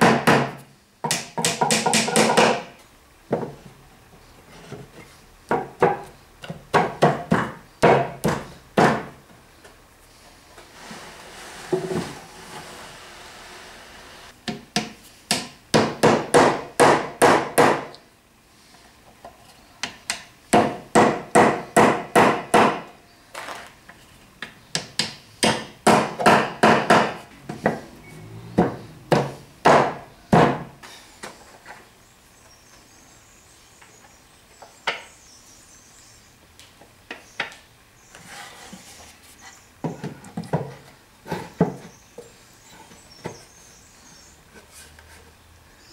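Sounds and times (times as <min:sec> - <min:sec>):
wooden mallet knocking on boards: 0:00.0 - 0:02.7, 0:28.6 - 0:30.7.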